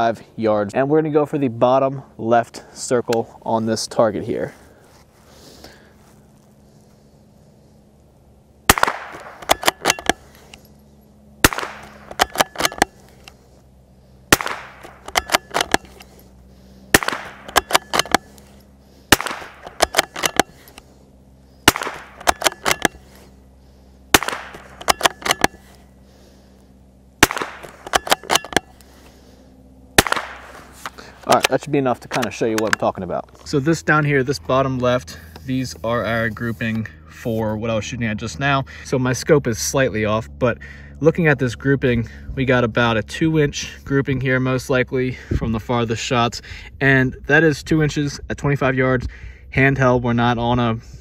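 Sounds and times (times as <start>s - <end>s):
rifle shots cracking: 8.7s - 10.3s, 11.4s - 13.0s, 14.3s - 16.0s, 16.9s - 18.4s, 19.1s - 20.7s, 21.6s - 23.0s, 24.1s - 25.7s, 27.2s - 28.7s, 30.0s - 31.6s
rifle bolt clicking: 17.0s - 18.2s, 19.2s - 20.5s, 21.7s - 23.0s, 24.2s - 25.6s.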